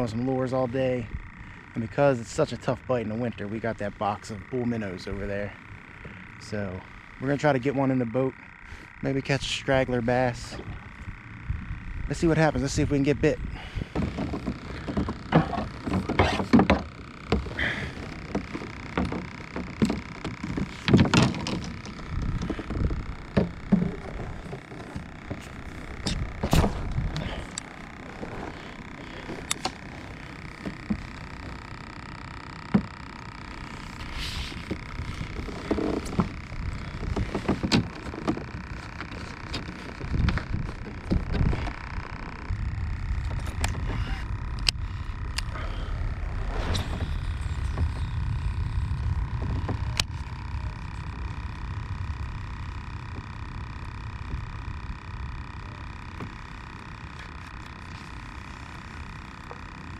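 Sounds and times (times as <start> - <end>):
wind rumble on microphone: 25.9 - 27.4, 40.0 - 55.6.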